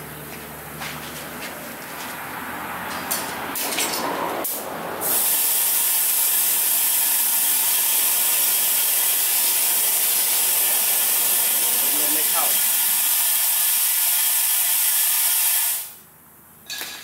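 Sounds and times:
compressed air hissing from hose: 4.5s - 16.0s.

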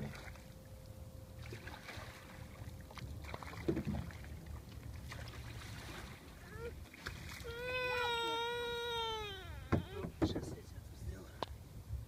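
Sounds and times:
paddle splashing in water: 1.4s - 8.5s
wind rumble on microphone: 9.2s - 12.0s.

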